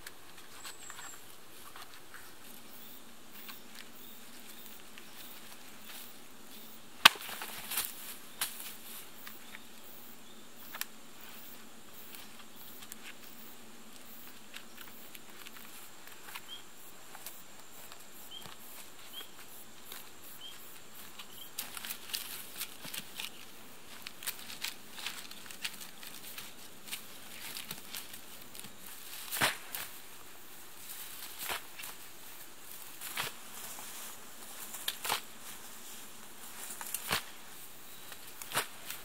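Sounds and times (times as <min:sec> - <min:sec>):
footsteps in dry leaves: 0:18.6 - 0:39.0.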